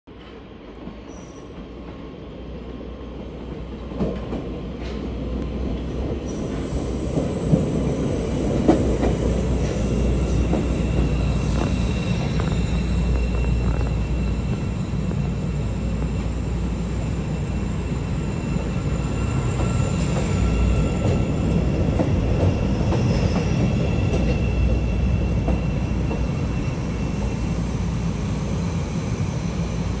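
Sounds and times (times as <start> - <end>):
train wheels rumbling on rail: 0.1 - 30.0
high-pitched wheel squeal: 6.2 - 21.2.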